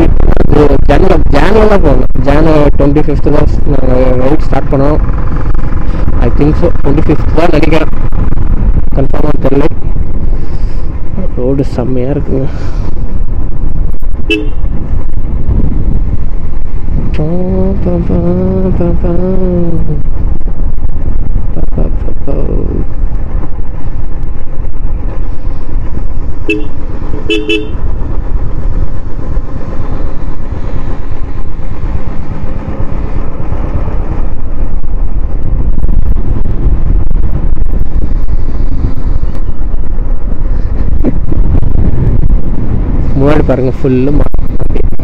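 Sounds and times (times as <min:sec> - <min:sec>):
motorcycle engine and wind rumble: 0:00.0 - 0:45.0
vehicle horn beeps: 0:14.3 - 0:14.6, 0:26.4 - 0:27.8.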